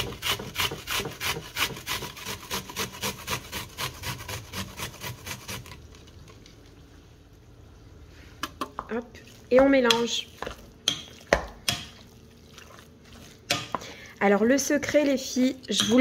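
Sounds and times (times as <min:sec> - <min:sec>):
onion grated on a grater: 0:00.0 - 0:05.8.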